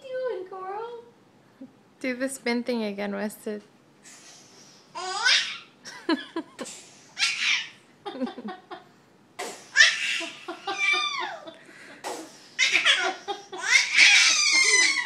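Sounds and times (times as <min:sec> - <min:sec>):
baby laughing: 0:05.0 - 0:05.7, 0:07.2 - 0:08.7, 0:09.7 - 0:11.6, 0:12.6 - 0:15.0.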